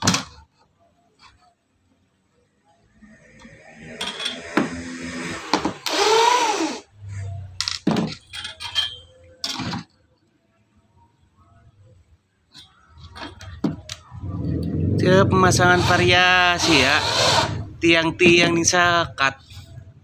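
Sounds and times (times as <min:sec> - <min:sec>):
tools clattering and clinking: 0:04.0 - 0:04.8, 0:07.6 - 0:09.9.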